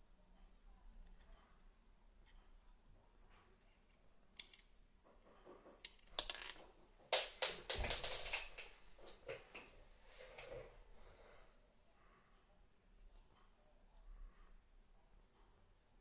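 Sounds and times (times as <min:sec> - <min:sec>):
small metal parts clicking on wood: 0:04.4 - 0:04.7, 0:05.8 - 0:08.4.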